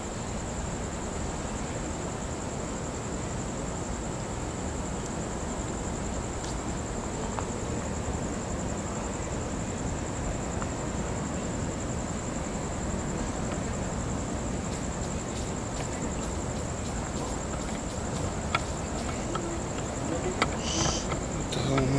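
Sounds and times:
low background rush: 0.0s - 21.9s
night insects trilling: 0.0s - 21.9s.

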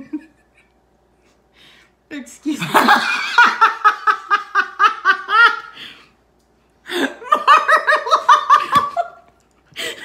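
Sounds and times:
women laughing hard: 2.6s - 5.8s, 6.9s - 10.0s.

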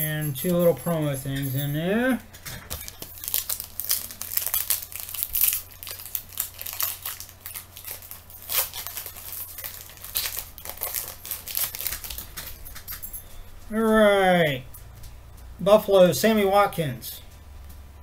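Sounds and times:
card pack wrapper crinkling and tearing: 2.7s - 12.7s.

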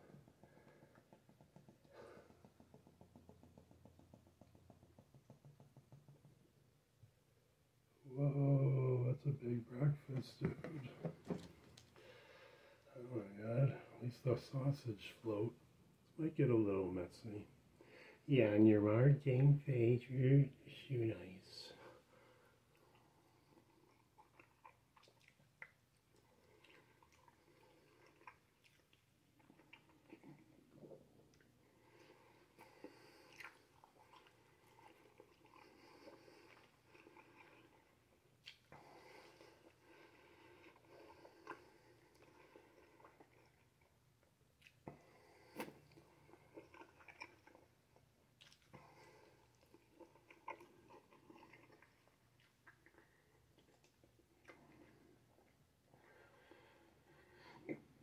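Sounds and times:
wet chewing with mouth smacks: 22.7s - 55.6s.

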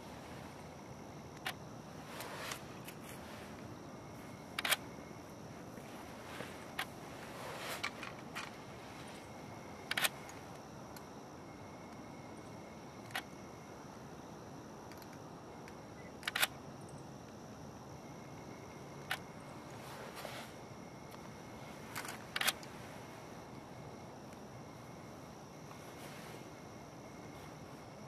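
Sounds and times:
faint hiss: 0.0s - 28.0s.

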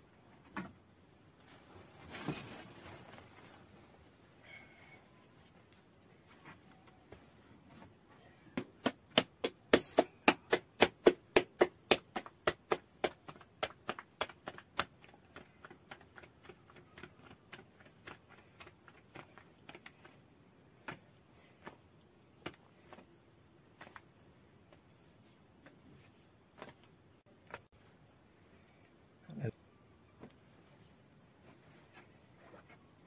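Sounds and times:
hands slapping dough: 8.6s - 23.1s, 23.7s - 24.8s.

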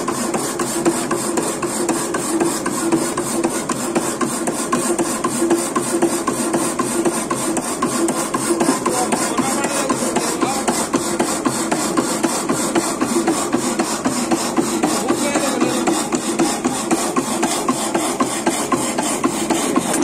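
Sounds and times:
power hacksaw cutting metal: 0.0s - 20.0s.

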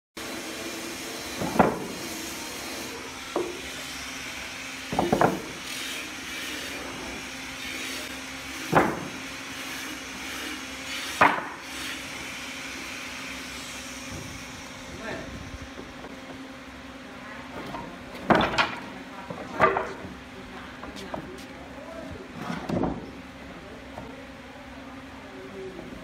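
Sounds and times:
steady background hum: 0.2s - 26.0s
wooden boards clacking together: 1.4s - 1.9s, 4.9s - 5.5s, 8.7s - 9.2s, 11.2s - 11.6s, 17.6s - 20.1s, 22.5s - 23.0s.

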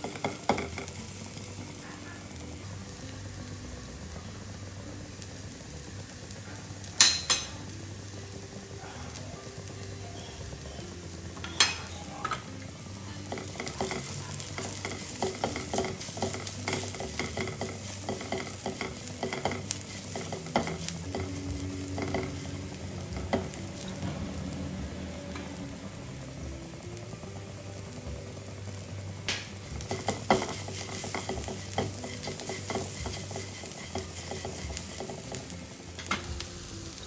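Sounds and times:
onions sizzling in a pan: 0.0s - 37.0s
spatula scraping a pan: 13.2s - 23.9s, 29.8s - 35.5s.

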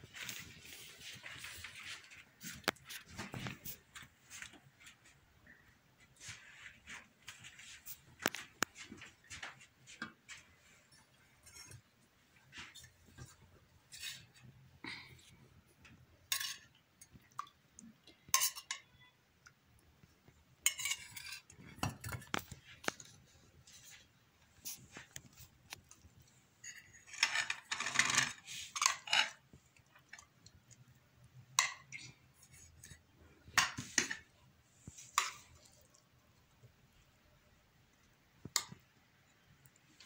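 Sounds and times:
metal spoon scraping metal pot: 16.3s - 16.8s, 18.3s - 18.9s, 20.6s - 21.6s, 26.6s - 29.5s.

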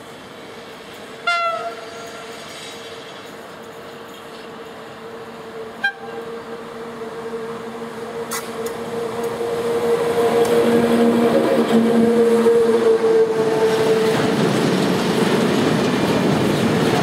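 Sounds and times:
electric train passing: 0.0s - 17.0s.

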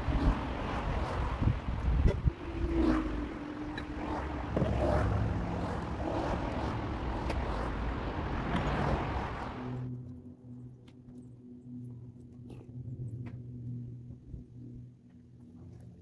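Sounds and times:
road traffic passing: 0.0s - 10.2s.

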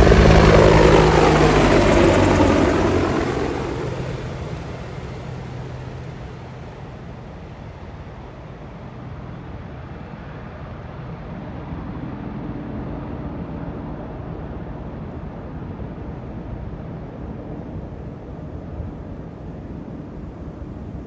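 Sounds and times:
helicopter rotor and engines droning: 0.0s - 21.0s.

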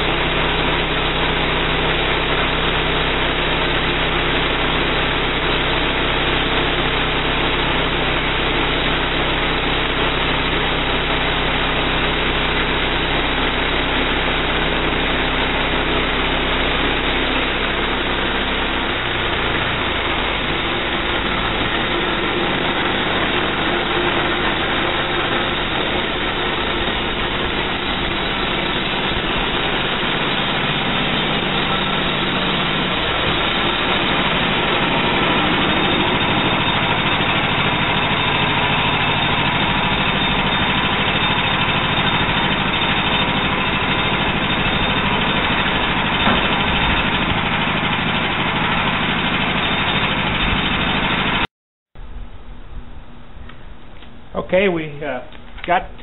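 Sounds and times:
sawmill engine running: 0.0s - 56.0s.

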